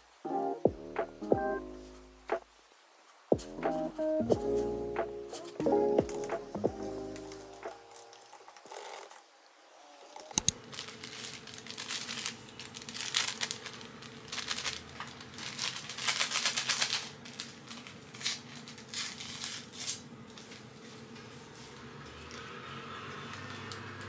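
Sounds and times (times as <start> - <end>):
faint steady hum: 0.0 - 23.7
paper sachet tearing and crinkling: 5.4 - 9.2, 10.4 - 24.0.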